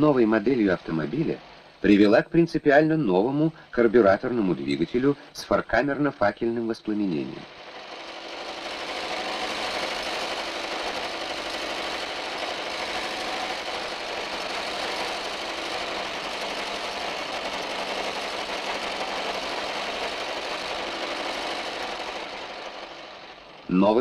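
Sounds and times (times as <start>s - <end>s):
petrol engine mechanical clatter: 0.0s - 24.0s.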